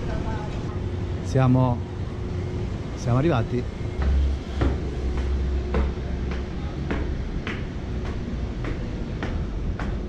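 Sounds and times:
footsteps climbing stairs: 0:03.1 - 0:10.0.

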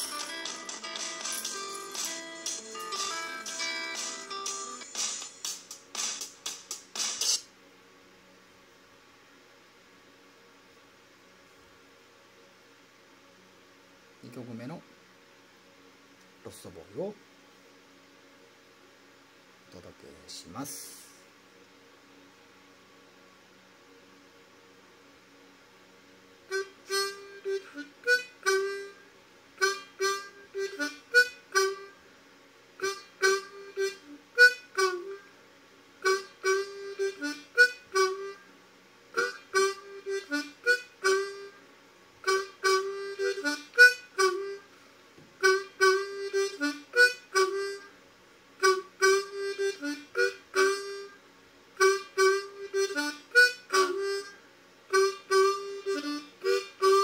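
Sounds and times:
harmonica rhythmic chords: 0:00.0 - 0:07.4, 0:26.5 - 0:32.1, 0:32.8 - 0:35.3, 0:36.0 - 0:38.5, 0:39.1 - 0:41.6, 0:42.2 - 0:44.7, 0:45.4 - 0:48.0, 0:48.6 - 0:51.2, 0:51.8 - 0:57.0.

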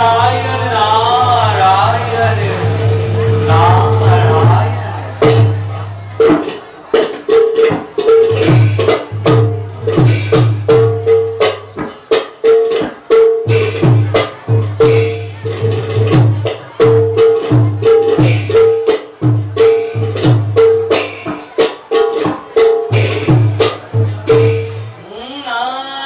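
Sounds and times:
person singing: 0:00.0 - 0:05.4
drums and hand cymbals playing: 0:00.0 - 0:25.1.

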